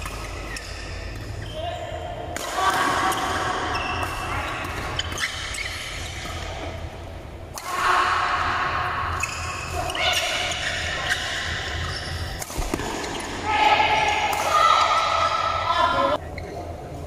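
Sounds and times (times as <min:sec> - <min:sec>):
steady low hum: 0:00.0 - 0:17.0
players' voices: 0:06.0 - 0:17.0.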